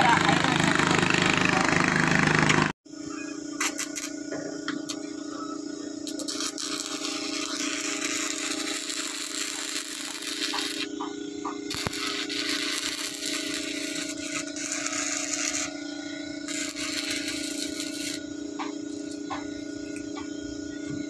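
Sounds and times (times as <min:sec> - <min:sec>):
steady hum: 0:02.9 - 0:21.0
welding arc crackling: 0:06.0 - 0:15.7, 0:16.4 - 0:20.0.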